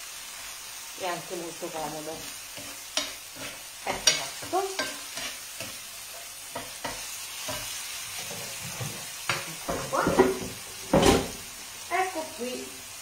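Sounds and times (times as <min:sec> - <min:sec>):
food sizzling in a frying pan: 0:00.0 - 0:13.0
spoon scraping a pan: 0:02.2 - 0:11.4.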